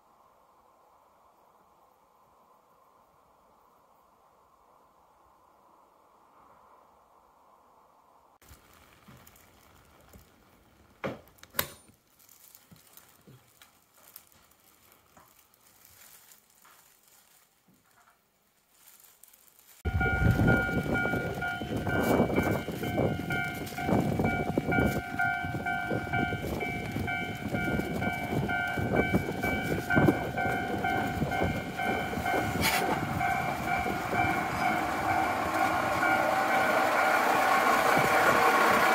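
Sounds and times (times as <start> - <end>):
diesel railcar engine and wheels: 19.9 - 38.9
level-crossing warning bell: 19.9 - 38.9.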